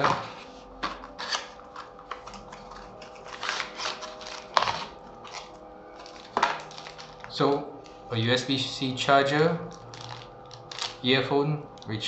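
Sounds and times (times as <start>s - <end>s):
cardboard and plastic rustling: 0.0s - 7.5s, 9.9s - 11.0s.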